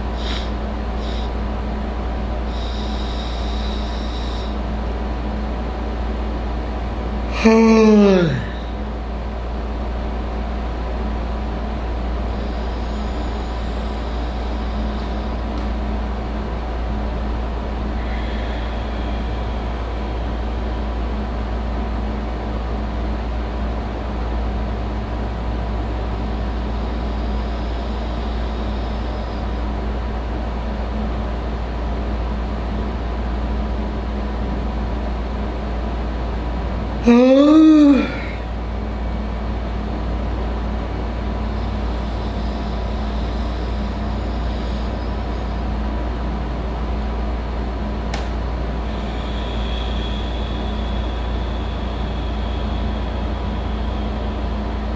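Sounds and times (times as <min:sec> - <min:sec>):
low background hum: 0:00.0 - 0:54.9
man yawning loudly: 0:07.3 - 0:08.7, 0:37.0 - 0:38.4.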